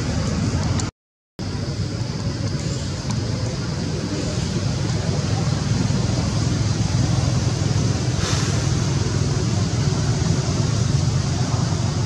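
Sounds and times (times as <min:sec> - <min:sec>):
low rumbling background noise: 0:00.0 - 0:12.0
brief hiss: 0:08.2 - 0:08.8.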